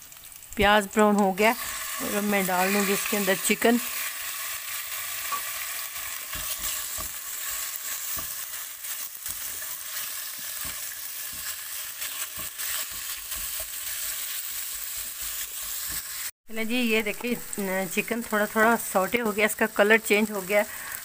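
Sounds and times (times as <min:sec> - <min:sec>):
chicken sizzling in oil: 0:00.0 - 0:16.4, 0:17.0 - 0:21.0
spoon scraping a pan: 0:01.6 - 0:16.3.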